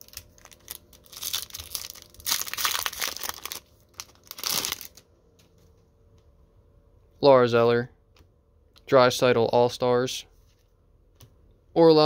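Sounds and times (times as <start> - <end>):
wrapper crinkling: 0.0 - 5.0.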